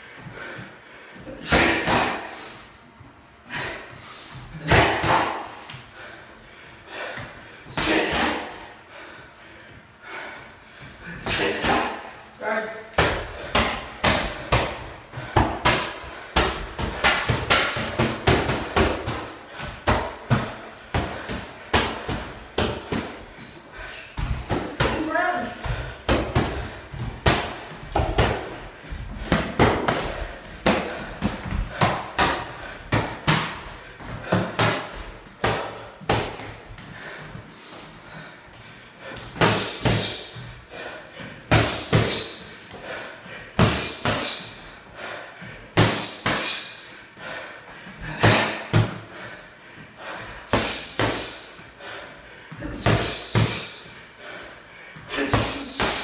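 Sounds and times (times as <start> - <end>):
boxing gloves smacking pads: 4.5 - 5.5, 13.0 - 23.2, 55.2 - 56.0.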